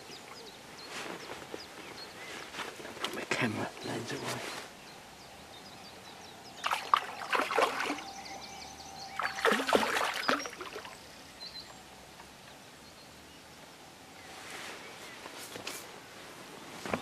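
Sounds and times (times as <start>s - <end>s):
fish splashing in water: 6.6s - 8.3s, 9.1s - 11.0s.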